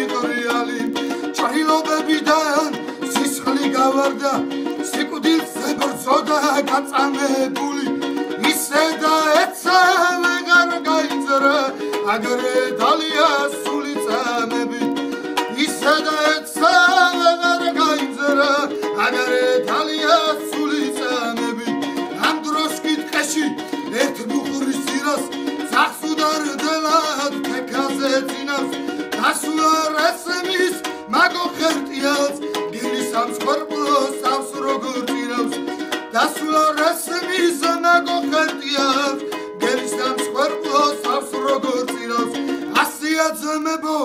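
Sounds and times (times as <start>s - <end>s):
plucked string instrument melody: 0.0s - 44.0s.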